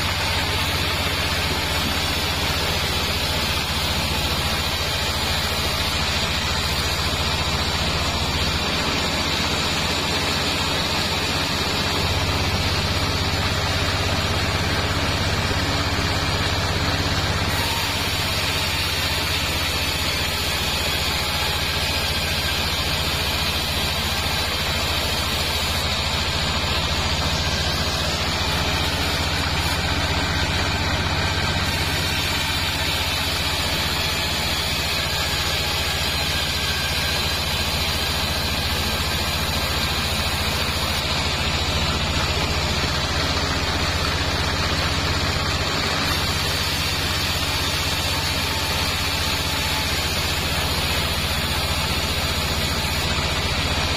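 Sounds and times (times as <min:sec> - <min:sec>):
bandsaw blade sawing log: 0:00.0 - 0:53.9.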